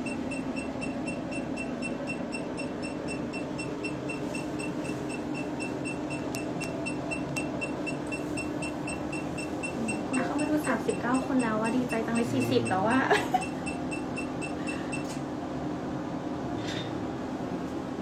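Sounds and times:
laser machine beeping: 0.0 - 15.1
machine running hum: 0.0 - 18.0.

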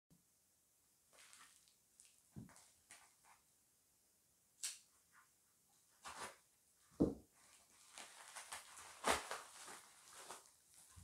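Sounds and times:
plastic mailer crinkling: 7.5 - 11.0.

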